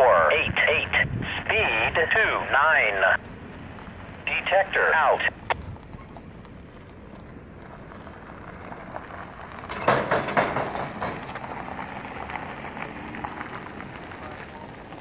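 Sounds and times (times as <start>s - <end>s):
tyres rolling: 1.6s - 15.0s
trailer clattering over rails: 5.7s - 15.0s.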